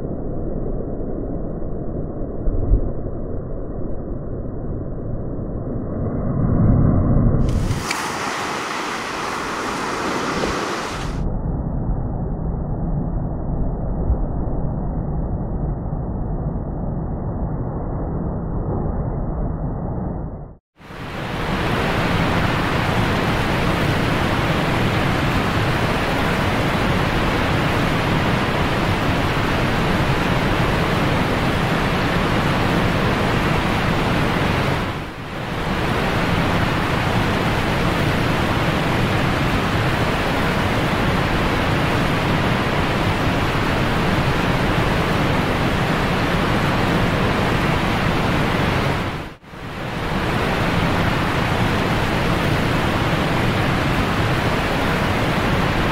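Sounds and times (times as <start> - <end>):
ocean surf rushing: 7.4 - 11.2, 20.8 - 55.9.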